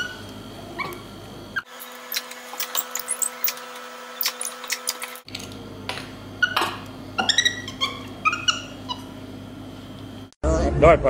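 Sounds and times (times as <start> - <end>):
monkey chirping: 6.4 - 9.2.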